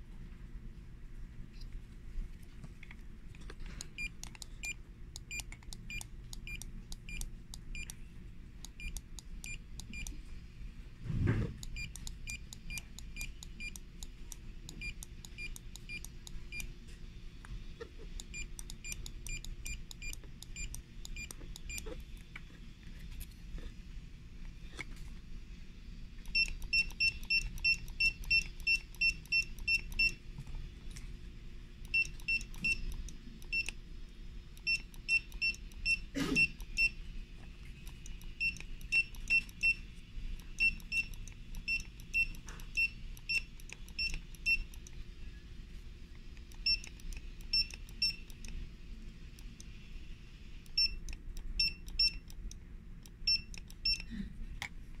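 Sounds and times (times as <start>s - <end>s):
barcode scanner beeping: 3.9s - 10.2s, 11.6s - 16.7s, 18.2s - 22.0s, 26.2s - 30.2s, 31.8s - 33.8s, 34.6s - 37.1s, 37.8s - 45.0s, 46.5s - 48.6s, 50.6s - 54.1s.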